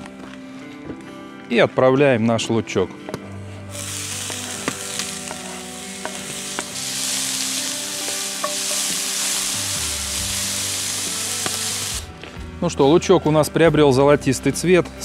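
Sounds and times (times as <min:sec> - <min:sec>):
onion sizzling in oil: 0:03.7 - 0:12.1.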